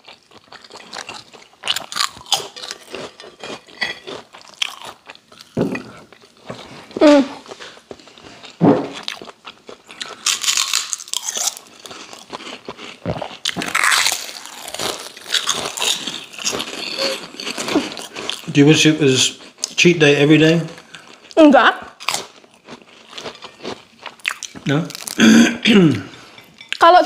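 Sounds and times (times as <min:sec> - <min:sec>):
crunching crackers: 0:00.0 - 0:25.4
person humming: 0:07.0 - 0:07.4.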